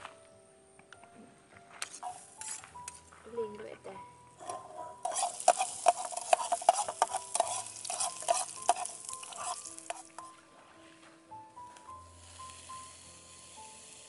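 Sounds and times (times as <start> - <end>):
utensil scraping and knocking pan: 4.5 - 10.3
food sizzling in a pan: 5.0 - 10.3, 12.1 - 14.0.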